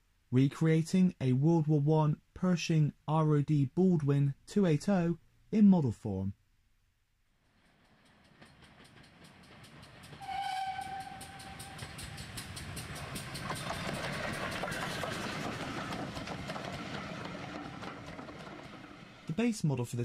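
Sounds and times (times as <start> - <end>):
steam train running: 7.5 - 19.6
steam train whistle: 10.2 - 12.5.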